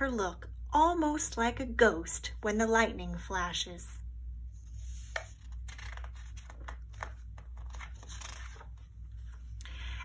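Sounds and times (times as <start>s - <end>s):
paper rustling: 4.8s - 9.6s.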